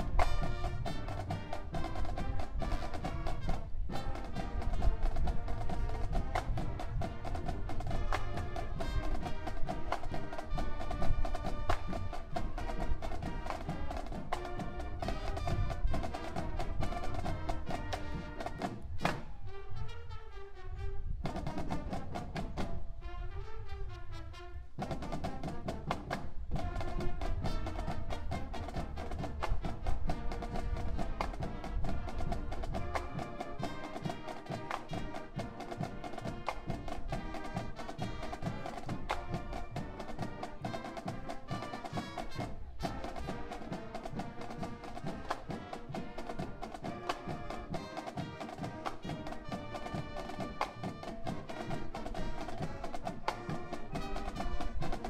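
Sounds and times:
drumline steady beat: 0:00.0 - 0:19.3, 0:21.2 - 0:22.8, 0:24.8 - 0:55.0
marching band playing: 0:00.0 - 0:55.0.

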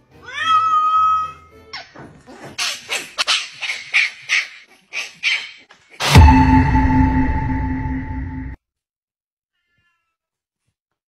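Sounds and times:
cat meowing: 0:00.2 - 0:01.5
puppy yapping: 0:01.8 - 0:05.7.

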